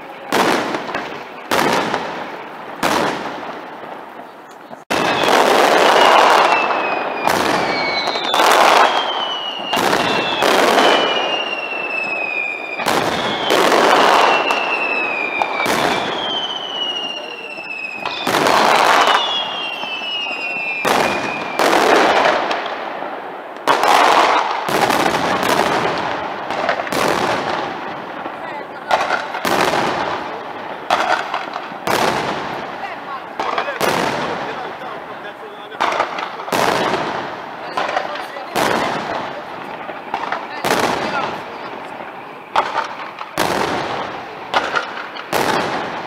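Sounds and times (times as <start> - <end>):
fireworks bursting: 0.0 - 46.0
firework whistles gliding down: 4.8 - 22.2, 39.8 - 42.7.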